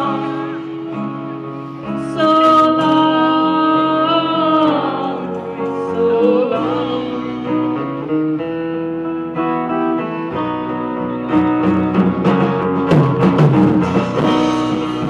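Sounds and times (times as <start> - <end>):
guitar notes ringing: 0.0 - 15.0
live band playing: 0.0 - 15.0
drums and cymbals: 11.7 - 15.0.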